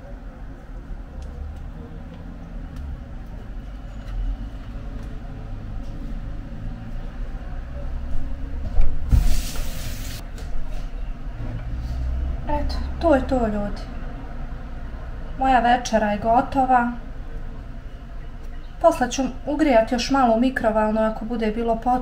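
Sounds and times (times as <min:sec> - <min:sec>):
rustling scrape: 0:09.1 - 0:10.9.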